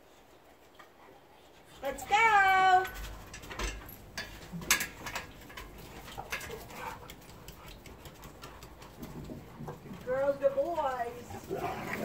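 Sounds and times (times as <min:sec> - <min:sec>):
dog nails clicking on floor: 0:02.8 - 0:10.6.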